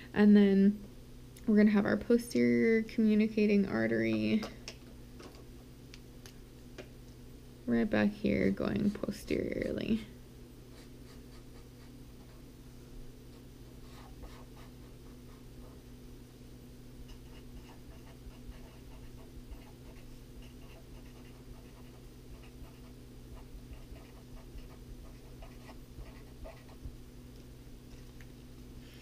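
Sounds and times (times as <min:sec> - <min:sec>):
steady low hum: 0:00.0 - 0:29.0
marker scratching on paper: 0:13.9 - 0:15.8, 0:17.1 - 0:26.8.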